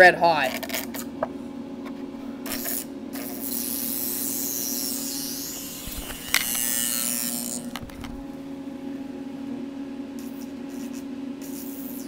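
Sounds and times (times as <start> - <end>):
low power supply hum: 0.0 - 12.0
sharp electric snap: 2.4 - 8.1, 10.2 - 12.0
carbon arc hissing and sputtering: 2.4 - 8.4, 10.2 - 12.0.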